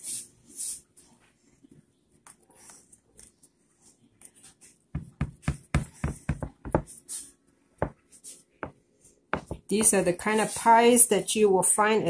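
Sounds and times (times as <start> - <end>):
pan knocking on counter: 9.4 - 10.0.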